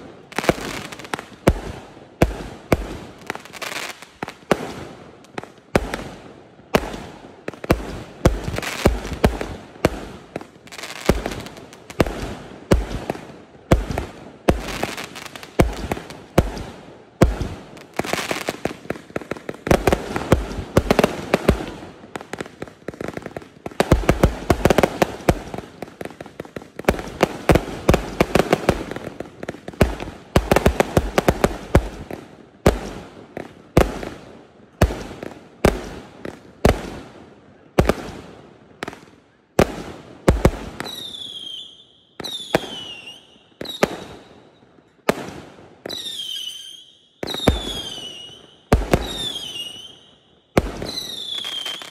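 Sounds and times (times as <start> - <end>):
fireworks bangs: 45.0 - 51.9.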